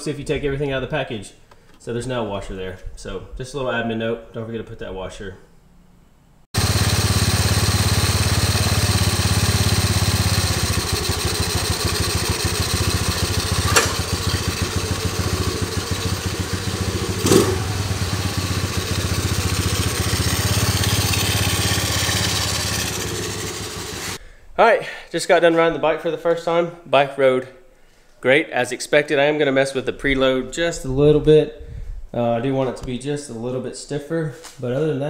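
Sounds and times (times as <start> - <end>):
small engine idling: 6.6 - 24.2
sharp clicks: 13.6 - 14.0.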